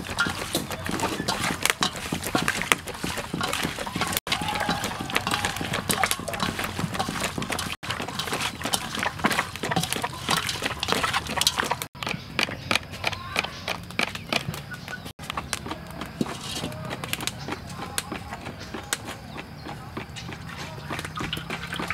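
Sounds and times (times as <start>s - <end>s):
raw meat squelching in bowl: 0.0s - 19.4s, 20.0s - 21.9s.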